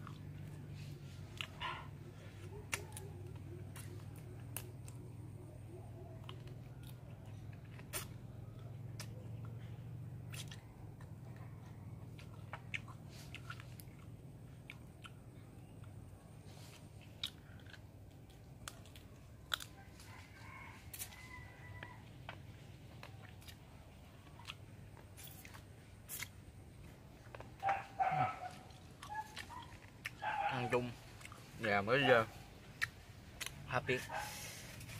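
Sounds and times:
person chewing crunchy food: 0.0 - 9.6, 10.2 - 31.8, 32.5 - 34.9.

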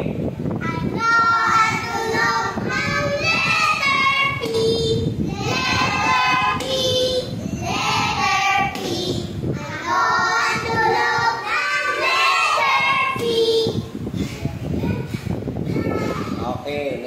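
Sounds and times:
children singing in chorus: 0.7 - 13.8.

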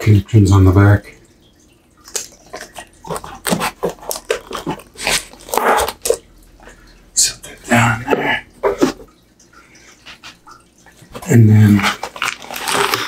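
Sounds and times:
plastic bag crinkling: 2.0 - 6.2, 11.6 - 13.0.

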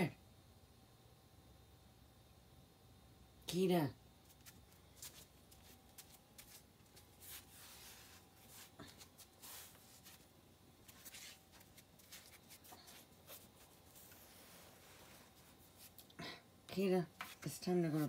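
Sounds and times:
faint rustles and scuffs: 4.2 - 18.0.

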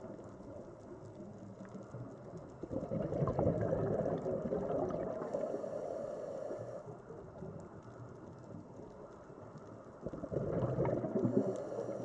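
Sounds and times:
underwater bubbles burbling: 0.0 - 5.6, 10.0 - 12.0
steady underwater hiss: 0.0 - 12.0.

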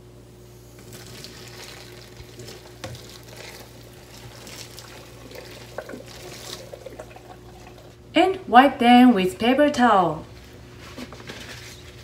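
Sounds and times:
hot water splashing into colander: 0.8 - 8.1.

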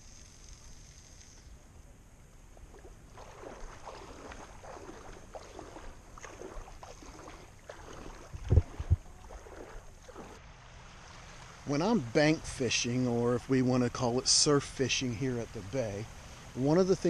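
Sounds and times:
water lapping and sloshing: 2.6 - 12.7.

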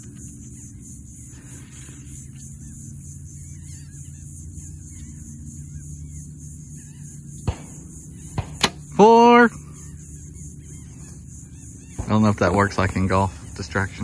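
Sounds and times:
faint bird chirps: 0.0 - 14.0
steady low rumble: 0.0 - 14.0
gunshot cracks: 7.5 - 8.8.

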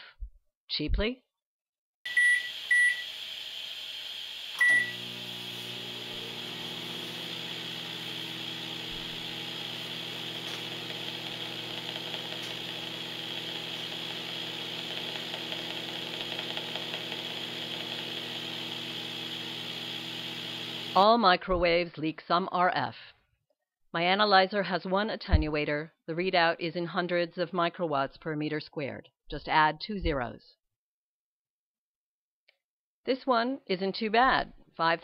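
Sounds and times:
microwave keypad beep: 2.1 - 3.1, 4.6 - 5.0
microwave oven humming: 2.1 - 21.0.

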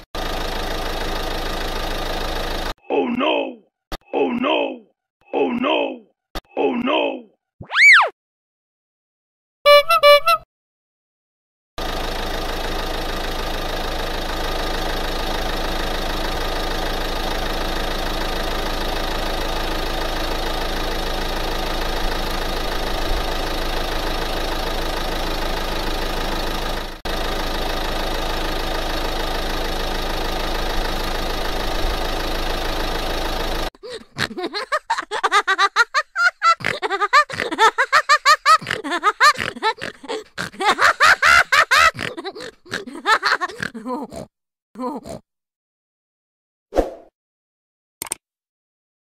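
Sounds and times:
engine idling: 0.0 - 2.7, 11.8 - 34.2
child laughing: 7.7 - 8.1, 9.7 - 10.4, 33.8 - 45.2.

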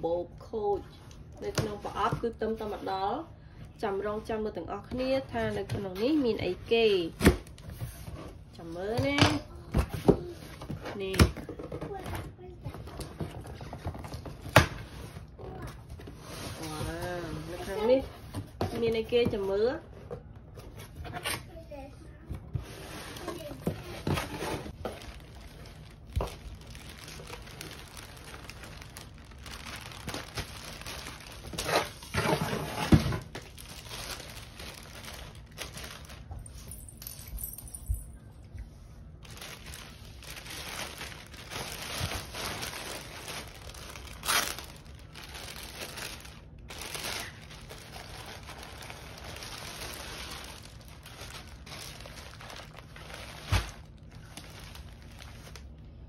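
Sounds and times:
plastic packaging crinkling: 22.8 - 37.0, 39.0 - 56.0.

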